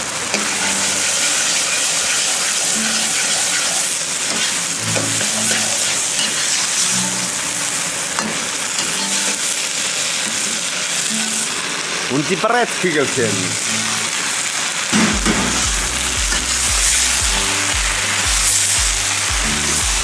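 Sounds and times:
vegetables sizzling in a wok: 0.0s - 20.0s
metal ladle scraping and knocking wok: 0.3s - 7.4s, 15.0s - 17.7s.

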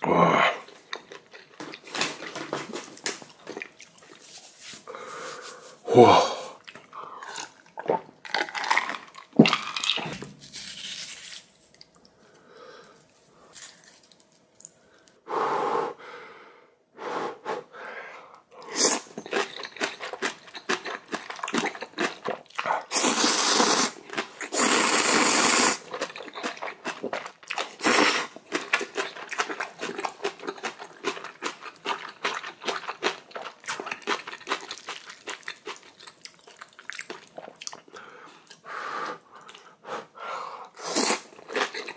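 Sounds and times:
wet chewing and crunching: 0.7s - 4.5s, 6.6s - 11.0s, 18.6s - 38.6s, 41.0s - 41.9s
loud sucking of noodles: 22.9s - 25.9s, 27.8s - 28.4s, 40.7s - 41.3s.

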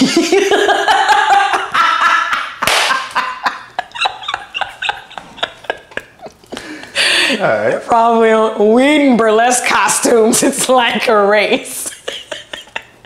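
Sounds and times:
sharp claps and slaps: 2.6s - 3.2s.

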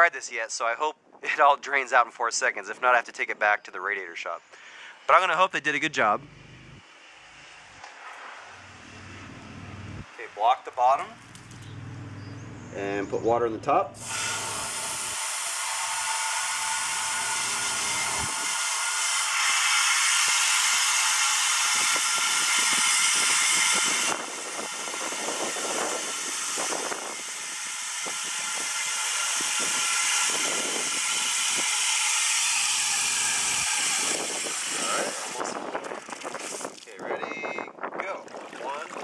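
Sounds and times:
water hissing into radiator: 14.0s - 17.9s
water splashing: 35.4s - 36.9s, 38.2s - 39.0s.

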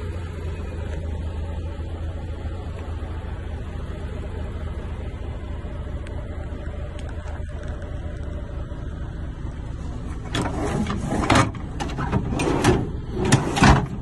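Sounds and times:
low engine hum: 0.0s - 14.0s
drawer sliding and scraping: 10.2s - 14.0s.

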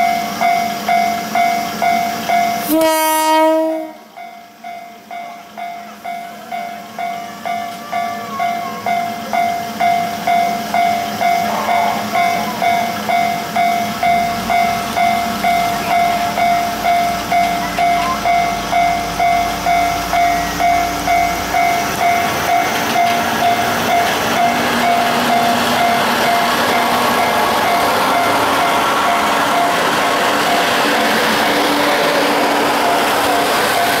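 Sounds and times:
railway crossing bell ringing: 0.0s - 34.0s
train wheel and running noise: 0.0s - 34.0s
diesel engines rumbling: 10.2s - 34.0s.

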